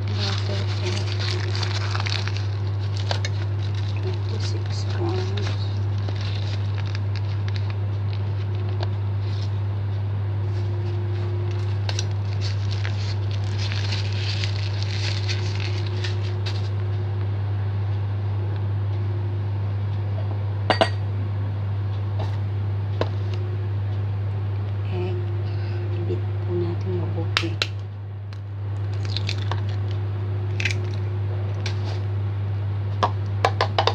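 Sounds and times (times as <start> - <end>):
plastic bag crinkling: 0.0 - 8.4, 11.5 - 16.8, 28.8 - 31.0
steady low hum: 0.0 - 33.9.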